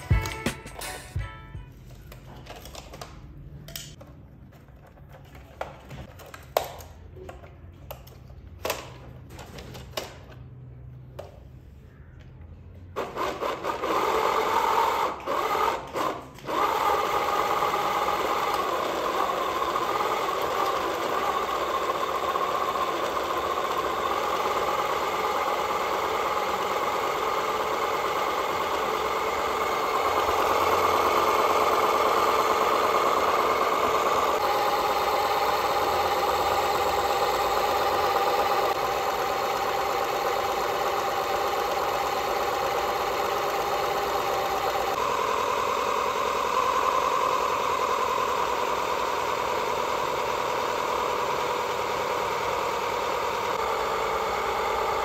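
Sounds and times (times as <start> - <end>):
toy car motor whirring: 13.1 - 53.6.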